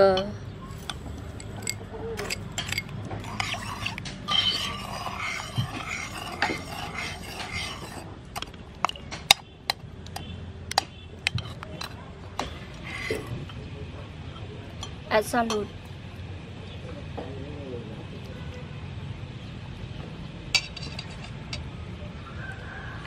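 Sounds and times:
liquid swishing in a pot: 0.7s - 8.1s, 11.3s - 13.3s
metal spoon clinking and scraping pot: 0.7s - 13.6s, 14.7s - 15.7s, 20.6s - 21.6s.

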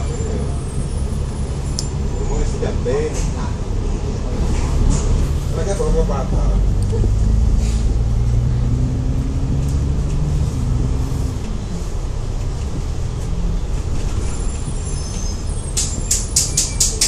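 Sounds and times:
bus diesel engine droning: 0.0s - 17.0s.

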